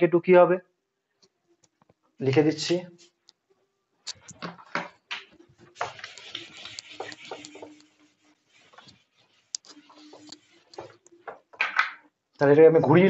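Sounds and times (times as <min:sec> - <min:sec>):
duster rubbing on whiteboard: 0:05.6 - 0:11.2.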